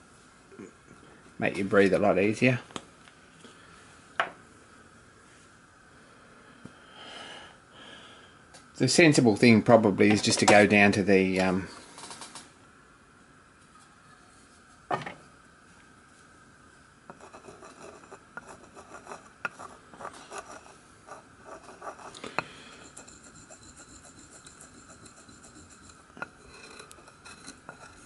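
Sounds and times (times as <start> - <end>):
tool scraping paste on wooden board: 17.1 - 28.0.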